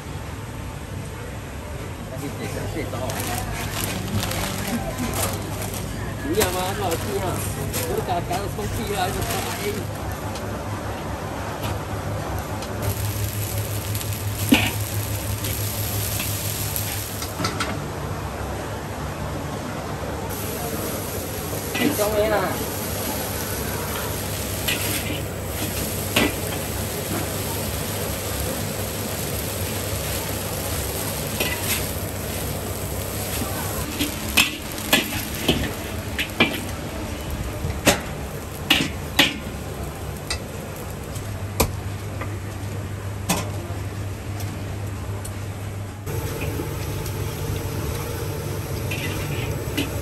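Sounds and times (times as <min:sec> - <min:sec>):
steady background noise: 0:00.0 - 0:50.0
spatula scraping in a wok: 0:29.5 - 0:36.7, 0:48.9 - 0:50.0.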